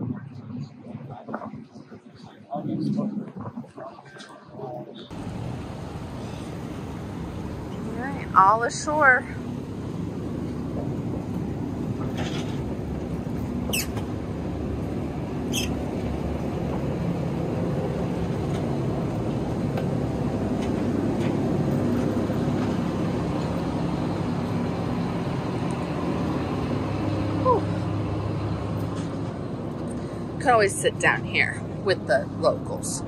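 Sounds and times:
ferry engines rumbling: 0.0s - 33.0s
high squeaks: 13.7s - 14.0s, 15.5s - 15.8s.

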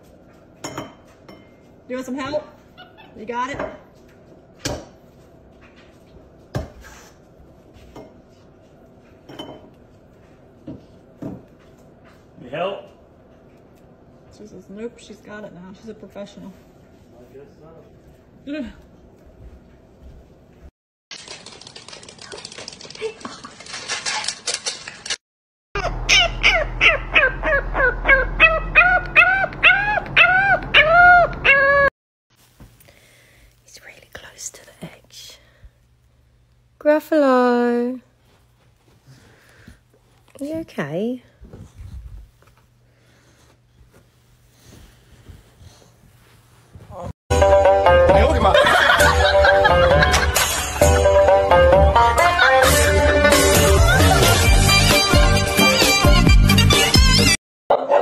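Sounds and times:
puppy howling: 25.8s - 31.9s.

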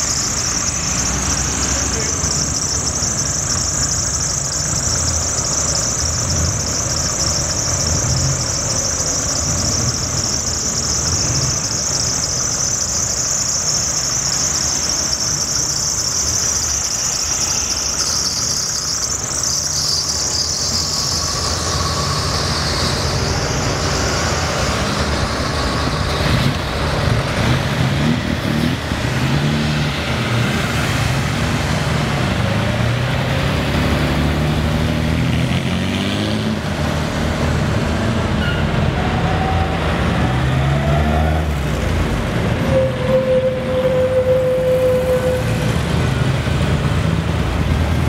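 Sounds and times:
steady held tone: 0.0s - 28.3s.

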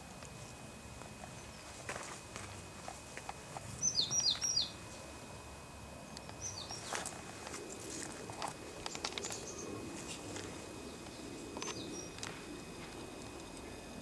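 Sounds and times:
low background hiss: 0.0s - 14.0s
small bird chirping: 3.8s - 4.8s, 6.1s - 7.1s, 8.9s - 9.8s, 10.8s - 12.8s
faint clicks and ticks: 10.4s - 13.7s.

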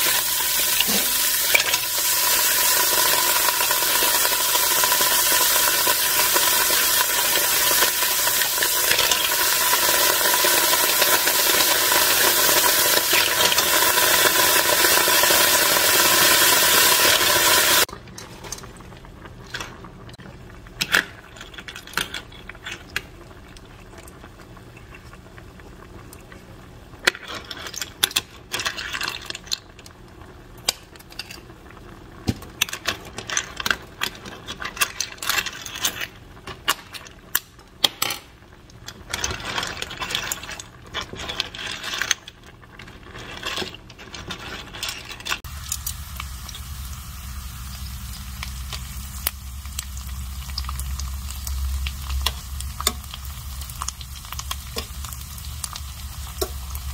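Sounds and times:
clam shells clattering in a pot: 0.0s - 19.8s, 20.6s - 25.2s, 27.0s - 30.0s, 30.6s - 46.7s, 48.4s - 56.9s
low hum with hiss: 17.8s - 56.9s.

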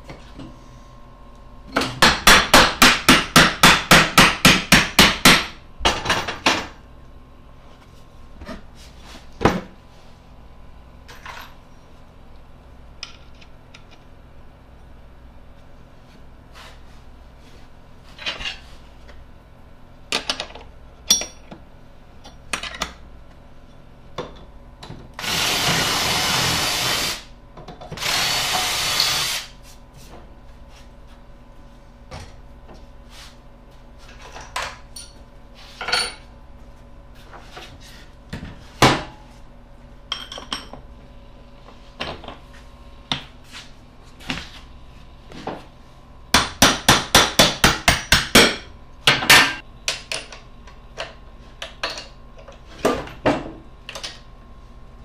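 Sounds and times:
cordless drill running: 25.2s - 27.3s, 28.0s - 29.5s.

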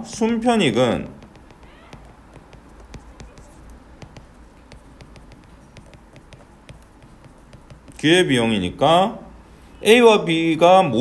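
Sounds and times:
stylus tapping on glass screen: 0.0s - 8.4s.

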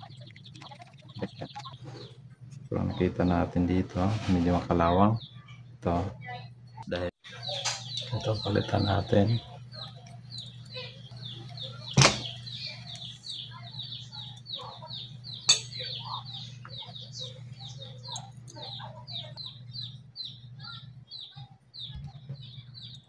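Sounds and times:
high bird chirps: 0.0s - 2.2s, 7.2s - 23.0s
steady low hum: 0.0s - 23.0s.

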